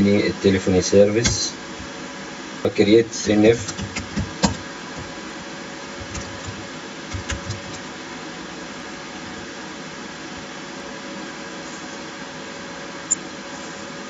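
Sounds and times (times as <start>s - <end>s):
steady background hiss: 0.0s - 14.0s
computer keyboard keystrokes: 3.6s - 5.1s, 6.0s - 7.8s.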